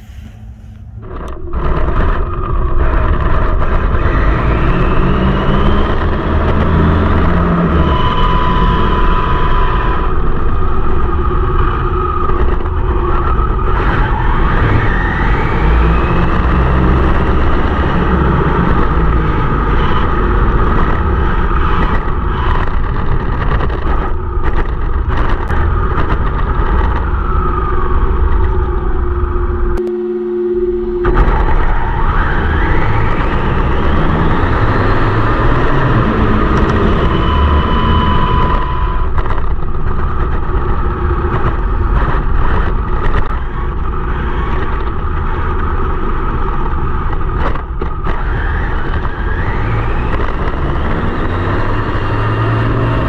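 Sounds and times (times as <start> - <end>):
electric motor whine: 0.0 - 23.2, 26.9 - 46.2
wind and road rumble: 0.0 - 53.0.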